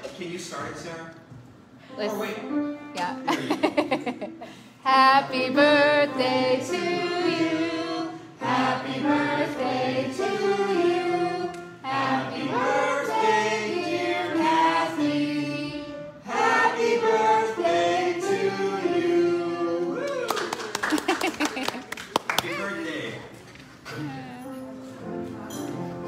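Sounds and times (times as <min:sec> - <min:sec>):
congregation singing: 0:04.8 - 0:20.0.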